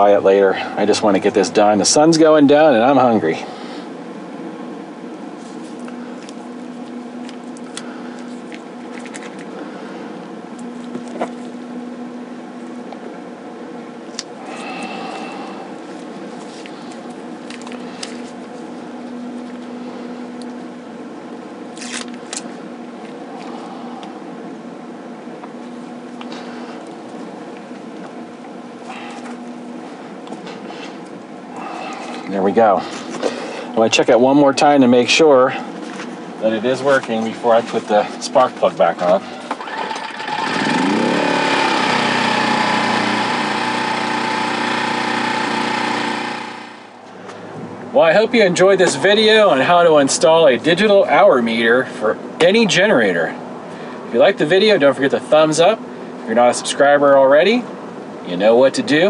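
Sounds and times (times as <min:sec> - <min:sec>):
mechanical hum: 0:00.0 - 0:59.0
generator engine running: 0:35.4 - 0:50.1.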